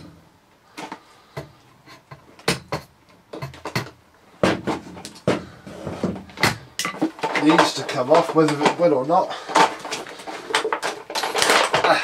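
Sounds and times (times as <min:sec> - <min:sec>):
hard plastic parts knocking: 0:00.8 - 0:08.8.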